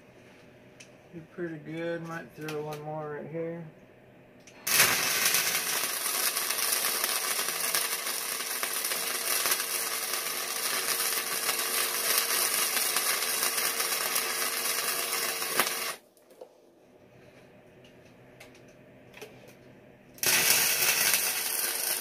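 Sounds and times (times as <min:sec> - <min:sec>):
faint steady hum: 0:00.0 - 0:22.0
welder crackling sizzle: 0:04.5 - 0:16.1, 0:20.2 - 0:22.0.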